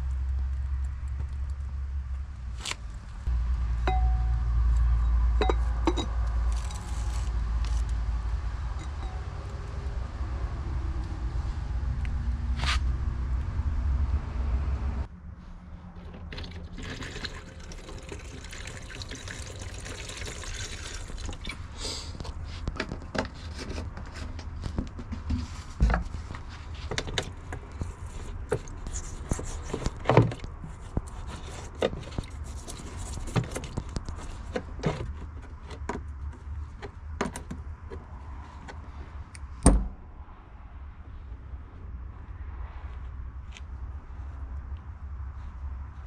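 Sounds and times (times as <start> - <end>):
low steady hum: 0.0 - 24.8.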